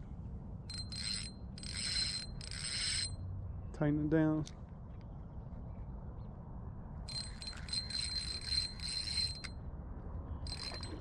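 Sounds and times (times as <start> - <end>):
fishing reel buzzing: 0.7 - 3.1, 7.1 - 9.5, 10.5 - 11.0.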